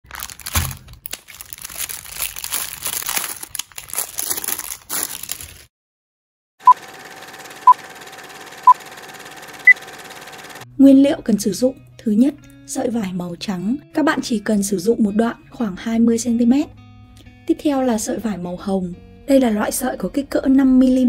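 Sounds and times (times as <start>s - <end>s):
plastic wrap crinkling: 0.0s - 5.7s.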